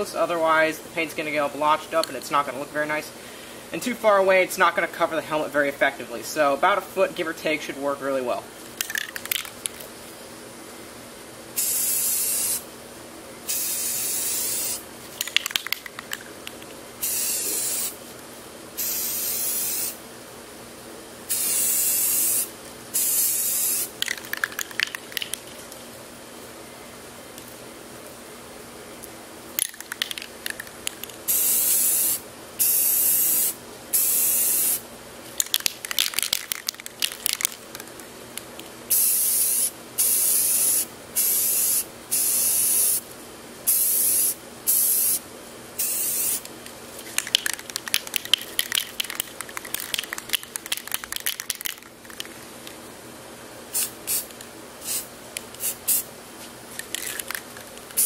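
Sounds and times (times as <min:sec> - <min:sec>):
spray can hissing: 0:11.6 - 0:12.6, 0:13.5 - 0:14.8, 0:17.0 - 0:18.0, 0:18.8 - 0:20.0, 0:21.3 - 0:25.4, 0:31.3 - 0:34.8, 0:38.9 - 0:43.0, 0:43.7 - 0:45.2, 0:45.8 - 0:46.5, 0:53.7 - 0:56.1.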